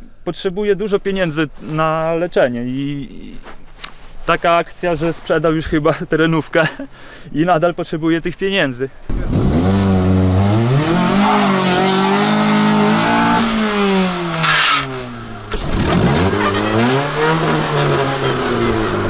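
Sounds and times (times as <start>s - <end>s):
car engine revving hard: 9.1s - 19.0s.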